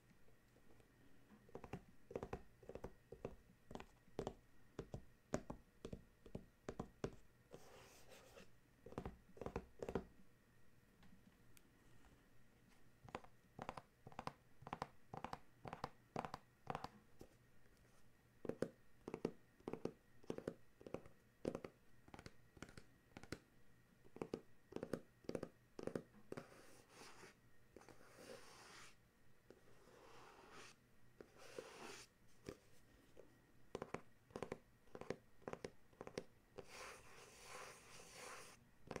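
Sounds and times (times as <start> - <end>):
fingertips tapping on cardboard: 1.5 - 7.6, 8.8 - 10.1, 13.1 - 17.0, 18.4 - 23.4, 24.1 - 27.9, 33.7 - 39.0.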